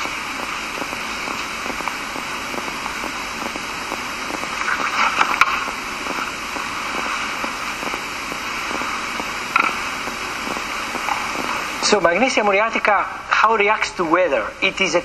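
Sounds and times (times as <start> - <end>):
recording hiss with crackles: 0.0 - 15.0.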